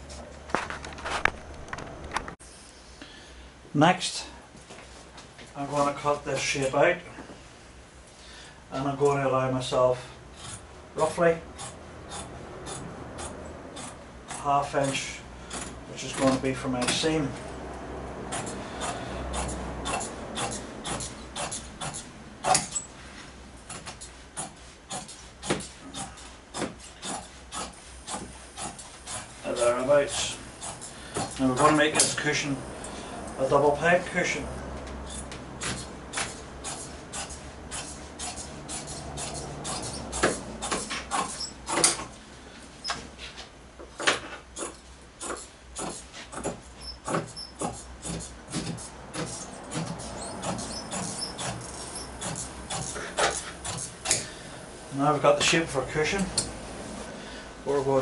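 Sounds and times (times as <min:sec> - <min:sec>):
shears snipping thick fabric: 0:10.4 - 0:15.0, 0:18.3 - 0:22.9, 0:23.6 - 0:32.2, 0:35.1 - 0:42.0, 0:44.0 - 0:54.3.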